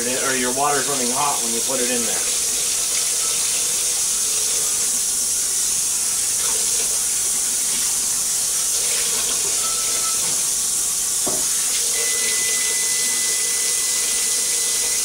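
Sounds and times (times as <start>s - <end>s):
water running into sink: 0.0s - 15.0s
faint high whistle: 9.6s - 10.3s, 11.9s - 15.0s.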